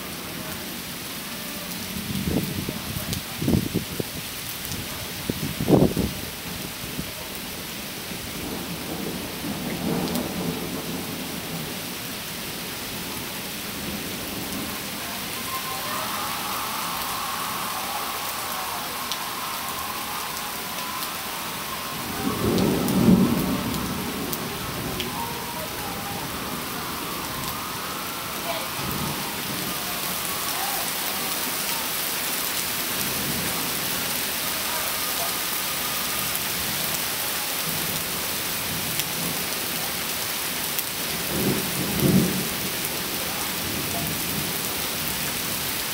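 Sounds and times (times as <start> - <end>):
steady rain falling: 0.0 - 45.9
thunder clap and rumble: 20.7 - 27.7.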